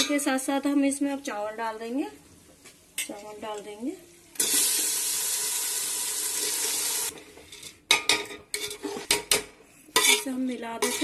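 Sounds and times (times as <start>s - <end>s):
rice sizzling in hot fat: 4.2s - 7.1s
spoon scraping against pot: 7.4s - 11.0s.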